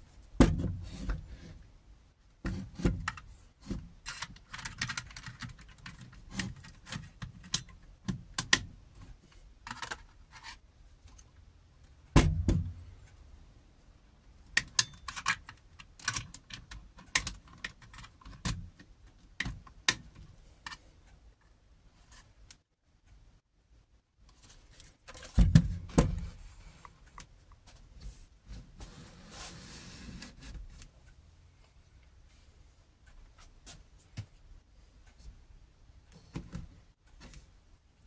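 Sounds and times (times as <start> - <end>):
heavy thump: 25.4 - 26.3.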